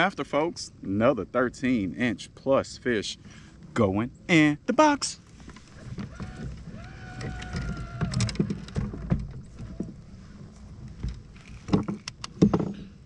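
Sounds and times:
knocks and thumps in boat: 0:05.3 - 0:13.0.

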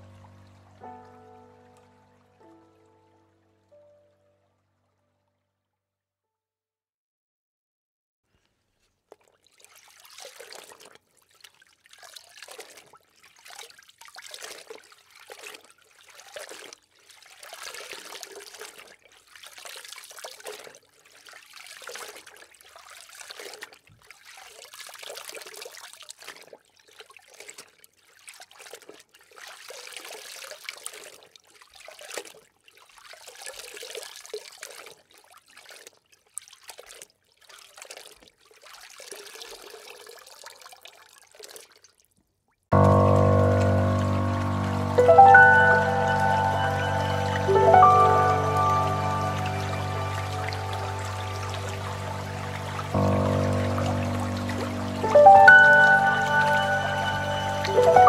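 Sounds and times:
water rushing and bubbling: 0:42.7 - 0:58.0.

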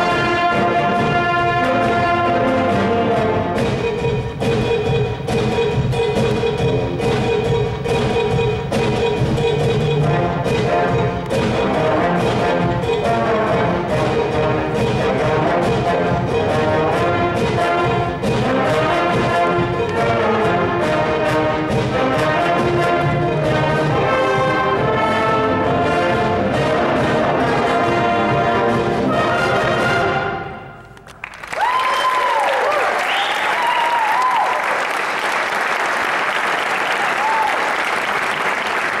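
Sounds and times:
concert band playing: 0:00.0 - 0:31.0
audience applause and cheering: 0:30.9 - 0:39.0.

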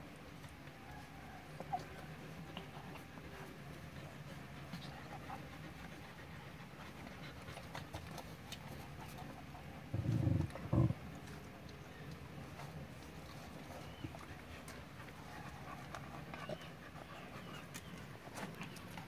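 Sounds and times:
puppies suckling: 0:01.6 - 0:19.0
dog panting: 0:01.7 - 0:11.0, 0:12.6 - 0:19.0
short low rumbles: 0:09.9 - 0:11.0.

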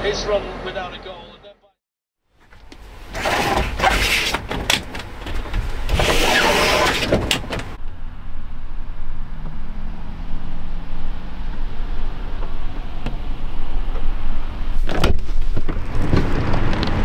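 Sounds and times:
blinds clicking into frames: 0:03.1 - 0:07.8
window blinds rattling open: 0:03.1 - 0:07.8
rain pattering on van: 0:15.5 - 0:17.0.

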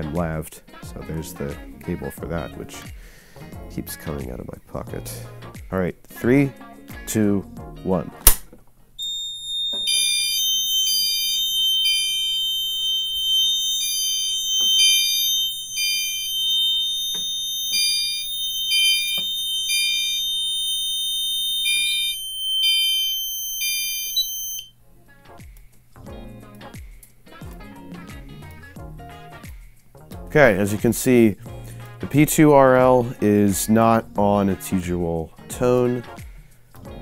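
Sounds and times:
continuous high-pitched alarm tone: 0:09.0 - 0:24.7
fire alarm beeping: 0:09.0 - 0:24.7.

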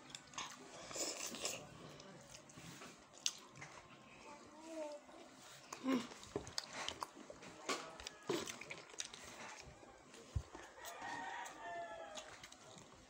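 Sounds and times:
chewing and lip-smacking: 0:00.0 - 0:04.1, 0:05.6 - 0:13.0
rooster crowing: 0:10.6 - 0:12.5.

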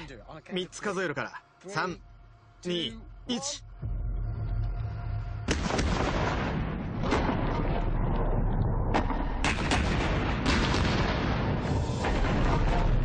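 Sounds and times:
continuous rumble: 0:00.0 - 0:13.0
explosion blast: 0:05.5 - 0:13.0
sharp cracks: 0:08.9 - 0:12.6.

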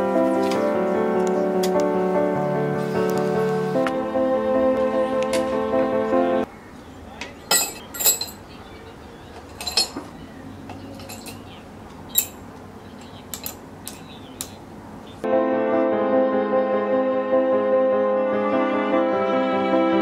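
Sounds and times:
metal rod clinking on crucible: 0:07.5 - 0:08.4, 0:09.6 - 0:10.0, 0:11.0 - 0:11.4, 0:12.1 - 0:12.4.

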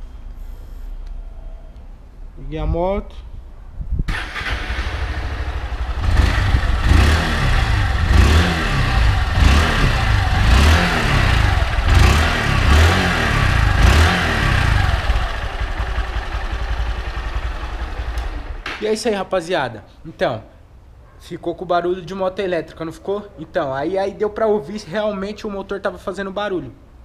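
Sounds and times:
motorcycle engine idling and revving: 0:04.1 - 0:18.8.

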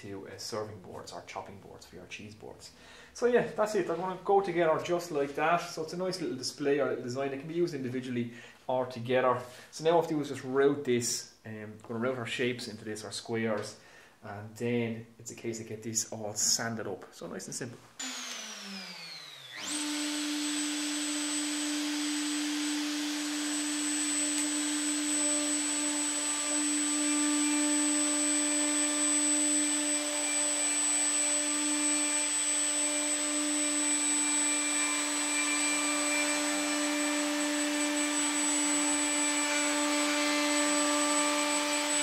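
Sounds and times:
router high whine cutting wood: 0:18.0 - 0:42.0.

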